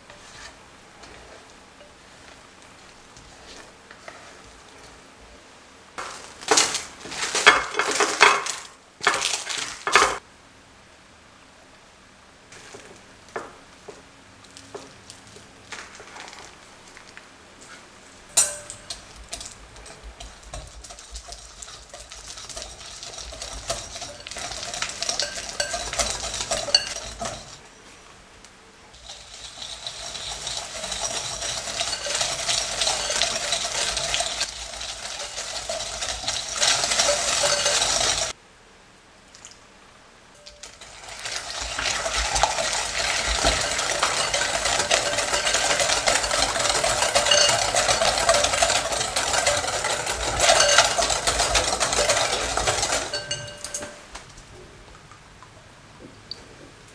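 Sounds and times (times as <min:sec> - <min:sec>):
whisk scraping glass bowl: 0:00.0 - 0:01.3, 0:18.4 - 0:27.6, 0:29.0 - 0:38.3, 0:40.4 - 0:54.0
sharp clink: 0:18.4 - 0:19.0.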